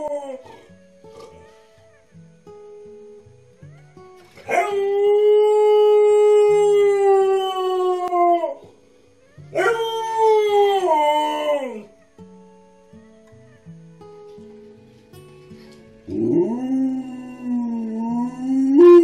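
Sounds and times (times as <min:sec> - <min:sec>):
dog howling: 0:00.0 - 0:01.6, 0:04.4 - 0:08.8, 0:09.5 - 0:11.9, 0:16.1 - 0:19.0.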